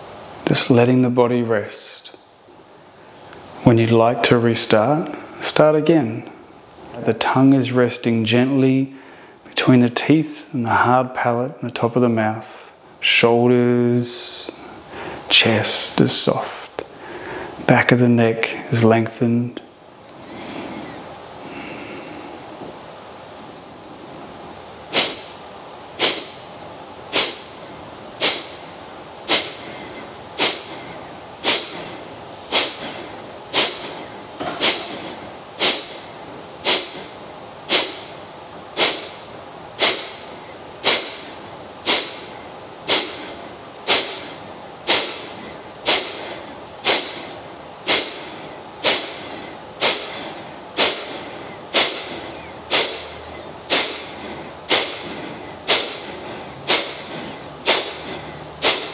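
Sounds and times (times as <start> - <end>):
quiet inhalations: 8.9 - 9.5, 14.5 - 15.3, 16.8 - 17.7, 20.1 - 22.6, 28.2 - 38.2, 38.8 - 58.9
forceful nasal exhalations: 20.2 - 22.4, 24.9 - 25.4, 26.0 - 26.4, 27.1 - 27.5, 28.2 - 28.6, 29.3 - 38.2, 38.8 - 58.9.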